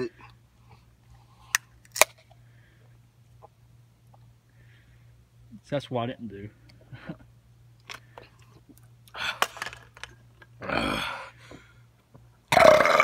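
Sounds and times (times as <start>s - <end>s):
man gasping breath: 10.7s - 11.9s.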